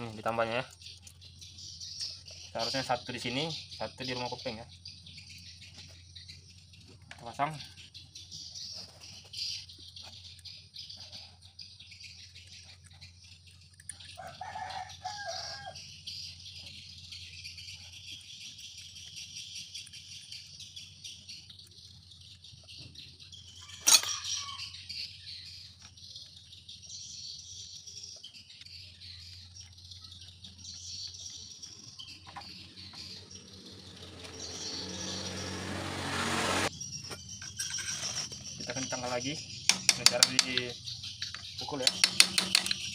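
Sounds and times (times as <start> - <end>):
faint chirping: 0.0 - 42.9
rooster crowing: 14.2 - 15.8, 23.6 - 24.8
rising noise: 32.7 - 36.7.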